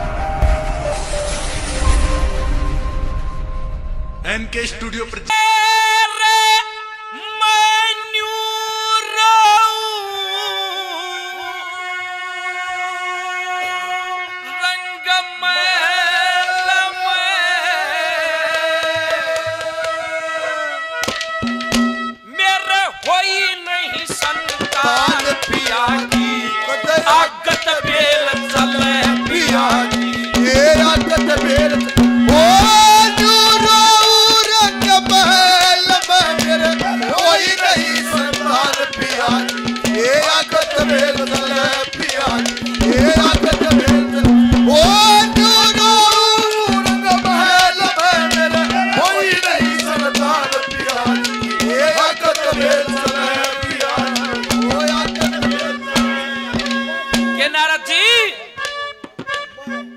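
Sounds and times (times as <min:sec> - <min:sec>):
musical accompaniment: 0:00.0 - 0:09.2, 0:17.8 - 0:59.9
man singing long held notes: 0:05.2 - 0:21.2, 0:22.2 - 0:58.6
hand drums fast beat: 0:21.0 - 0:22.2, 0:23.0 - 0:57.6
sliding melody line: 0:21.0 - 0:57.7.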